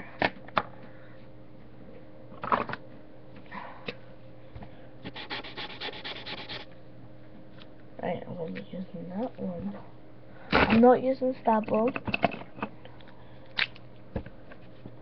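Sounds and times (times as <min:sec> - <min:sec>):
faint steady hum: 0:00.0 - 0:15.0
marker scratching on paper: 0:05.1 - 0:06.7.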